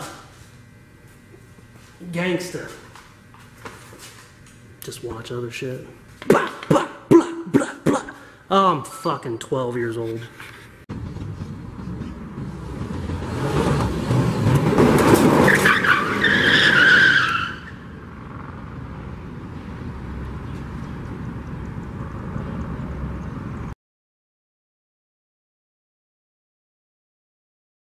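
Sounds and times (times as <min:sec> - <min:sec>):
low steady rumble: 0:10.8 - 0:15.1, 0:17.7 - 0:23.7
car speeding past: 0:10.9 - 0:16.8
tire squeal: 0:11.1 - 0:18.6.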